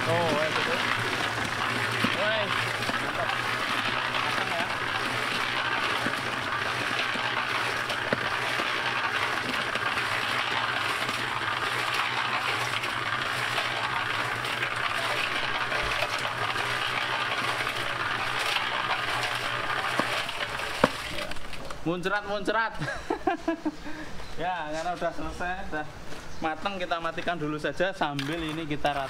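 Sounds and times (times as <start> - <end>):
wet concrete sloshing down chute: 0.0 - 21.6.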